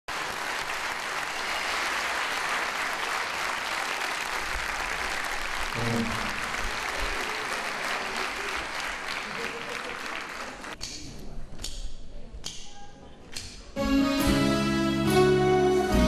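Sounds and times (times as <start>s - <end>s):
audience applauding: 0.1s - 10.8s.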